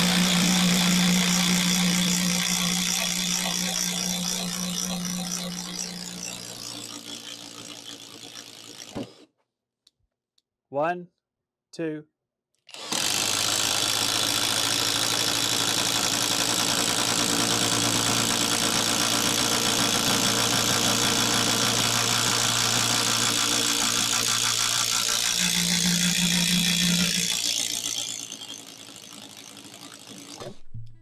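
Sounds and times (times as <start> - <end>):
impact driver boring through wood: 0.0 - 9.3, 12.7 - 30.6.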